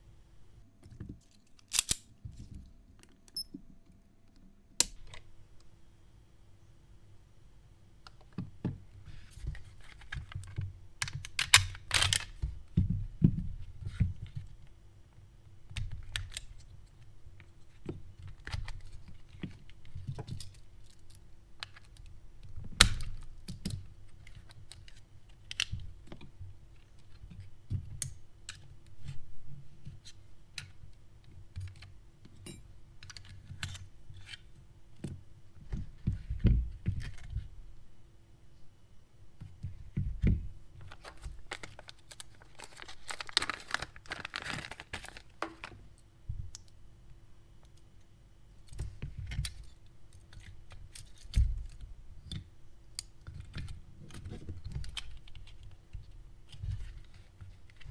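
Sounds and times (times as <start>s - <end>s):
pistol parts clicking: 1.4s - 2.1s.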